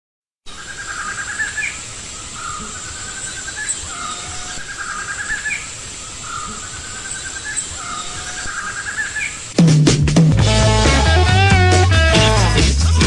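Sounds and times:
birds trilling and chirping: 0:00.5 - 0:09.6
high insect whine: 0:00.5 - 0:09.6.

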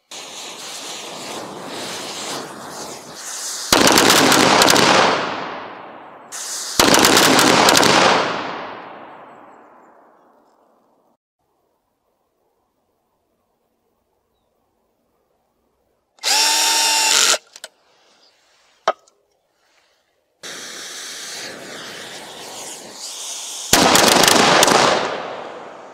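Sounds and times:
rockets hissing: 0:00.0 - 0:07.4, 0:19.6 - 0:25.9
loud rapid crackling bursts: 0:00.0 - 0:08.6, 0:16.2 - 0:17.4, 0:20.4 - 0:25.9.

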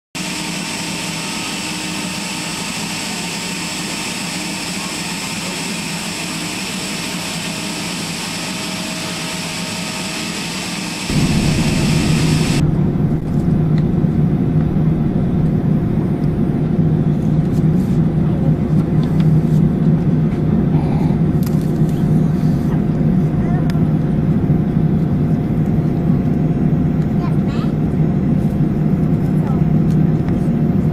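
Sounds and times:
jet airliner whine and hiss: 0:00.2 - 0:12.7
aircraft rumble inside cabin: 0:00.6 - 0:30.9.

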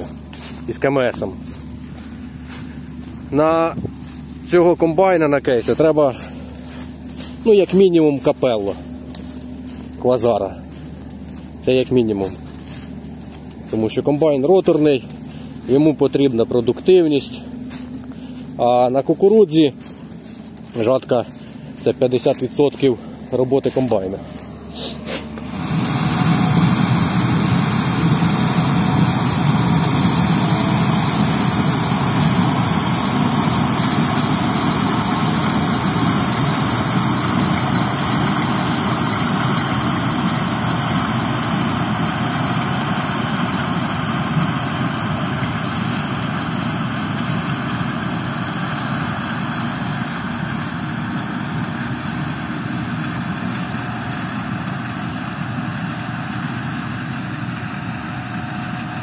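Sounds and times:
combine harvester running: 0:00.0 - 0:59.0.

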